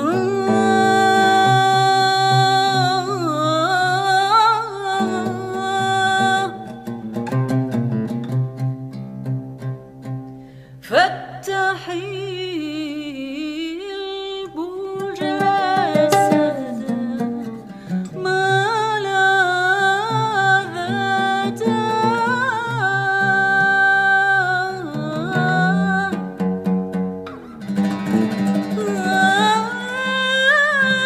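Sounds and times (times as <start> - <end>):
person singing with vibrato: 0.0 - 7.0, 10.8 - 26.4, 28.4 - 31.0
plucked string accompaniment: 0.0 - 10.6, 14.9 - 31.0.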